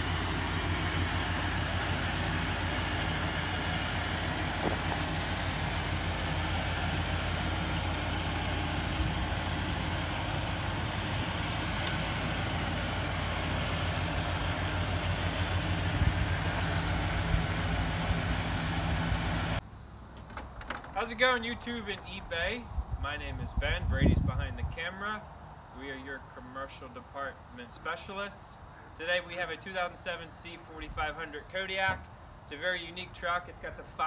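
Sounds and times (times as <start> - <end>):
truck engine idling: 0.0 - 22.3.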